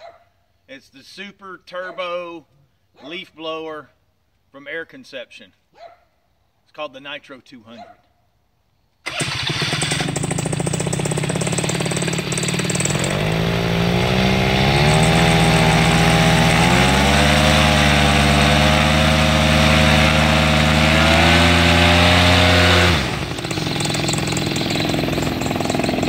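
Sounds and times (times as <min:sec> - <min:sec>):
paramotor engine revving: 0:09.1 - 0:26.0.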